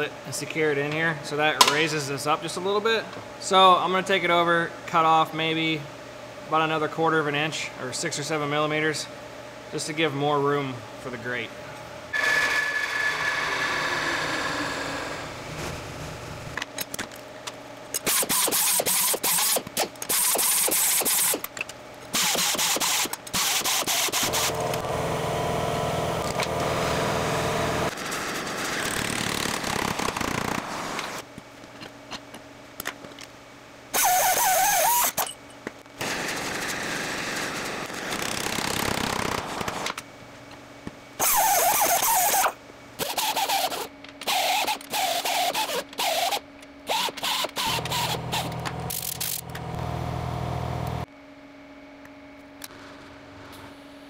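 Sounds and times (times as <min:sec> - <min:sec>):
steady motor hum: 0:10.6 - 0:32.6, 0:39.8 - 0:54.0
metal power tools running: 0:22.2 - 0:28.0, 0:41.3 - 0:51.0.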